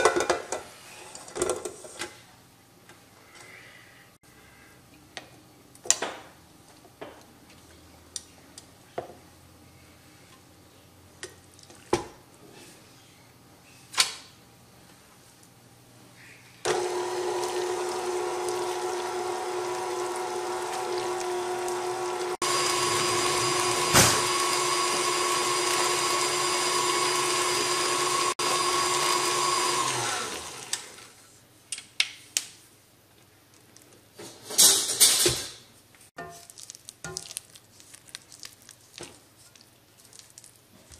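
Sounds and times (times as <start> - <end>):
stand mixer motor whining: 16.7 - 31.1.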